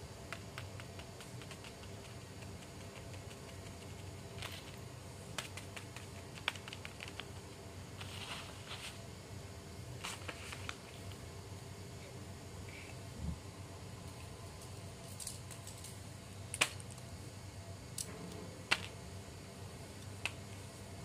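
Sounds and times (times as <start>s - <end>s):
plastic toys clicking on paper: 0.3s - 7.5s
paper rustle: 4.3s - 4.8s, 8.0s - 9.0s, 10.0s - 11.1s.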